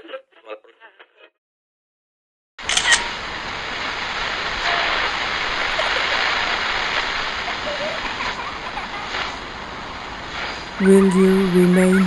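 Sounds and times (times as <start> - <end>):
rushing water: 3.0 - 10.9.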